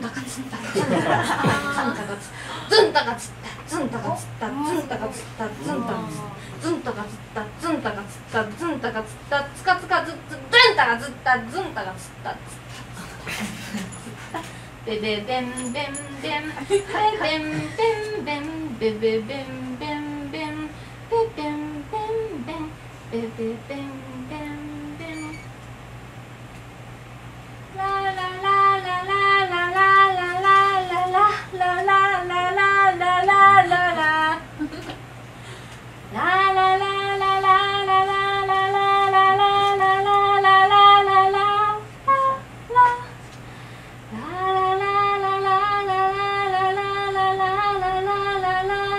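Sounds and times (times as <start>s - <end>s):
woman humming a melody: 3.7s - 6.8s.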